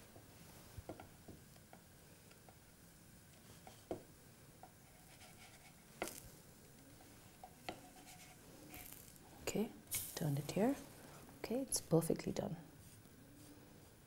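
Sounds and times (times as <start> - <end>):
utensil scraping a pan: 7.3 - 9.0.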